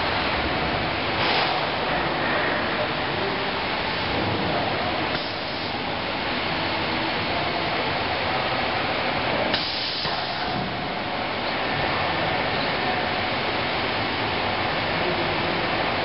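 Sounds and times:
conveyor machine noise with hiss: 0:00.0 - 0:16.0
sharp burst of hiss: 0:09.6 - 0:10.4.

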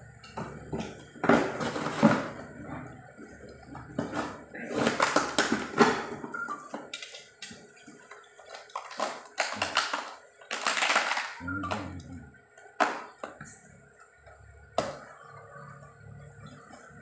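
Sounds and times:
plastic wrapping crinkling: 0:08.4 - 0:11.4
packing tape tearing: 0:08.5 - 0:11.4.

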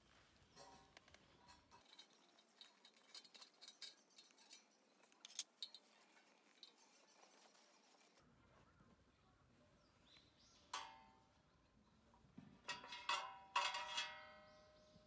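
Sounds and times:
light metallic clinks: 0:00.5 - 0:08.1.

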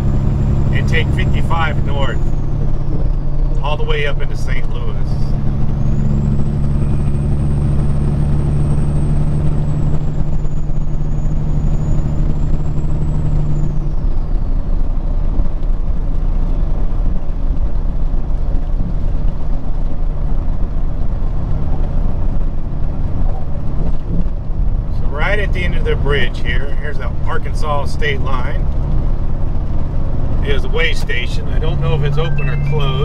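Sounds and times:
truck diesel engine drone: 0:00.0 - 0:33.0
tyre and road noise: 0:00.0 - 0:33.0
faint high whistle: 0:31.8 - 0:33.0.

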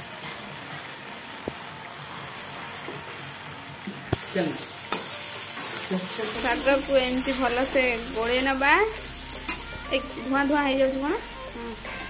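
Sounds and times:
vegetables sizzling in oil: 0:00.0 - 0:12.0
metal spatula stirring: 0:09.3 - 0:10.0.

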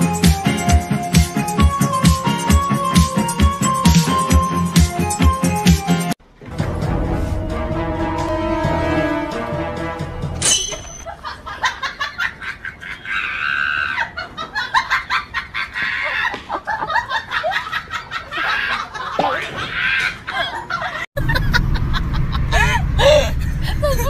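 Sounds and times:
background music: 0:00.0 - 0:11.0
people laughing: 0:11.0 - 0:24.0.

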